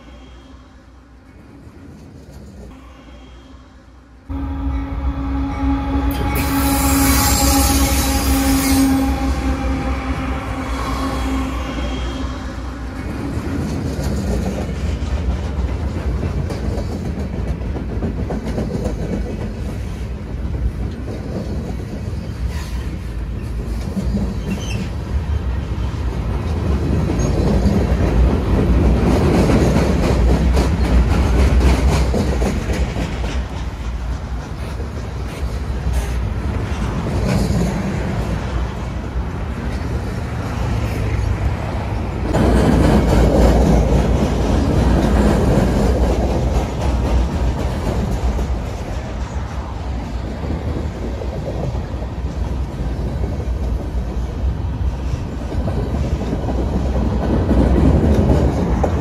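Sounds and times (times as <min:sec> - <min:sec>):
freight train wheels rumbling: 0:00.0 - 0:59.0
clickety-clack over rail joints: 0:12.9 - 0:59.0.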